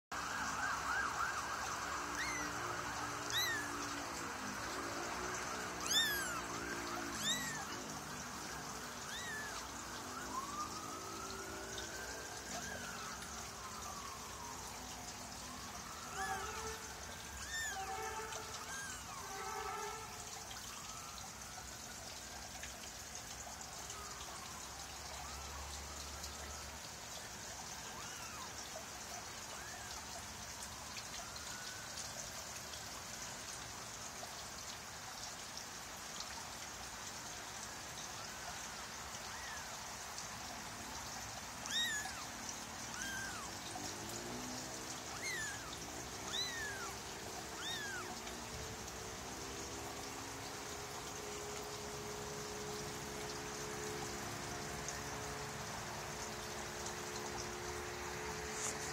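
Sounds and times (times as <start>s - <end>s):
kitten mewing: 2.1s - 2.5s, 3.3s - 3.7s, 5.8s - 7.9s, 9.0s - 9.6s, 17.4s - 17.8s, 18.6s - 19.2s, 41.6s - 42.3s, 42.9s - 43.6s, 45.1s - 48.1s.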